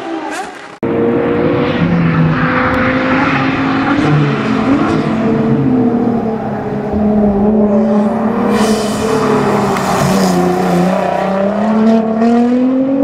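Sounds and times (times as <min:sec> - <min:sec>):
sports car engine revving: 0:00.8 - 0:13.0.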